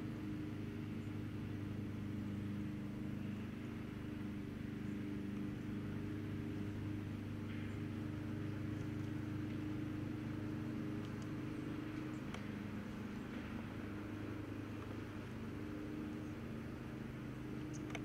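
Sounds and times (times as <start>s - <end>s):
motor humming: 0.0s - 18.0s
faint ticks: 10.9s - 12.5s, 17.6s - 18.0s.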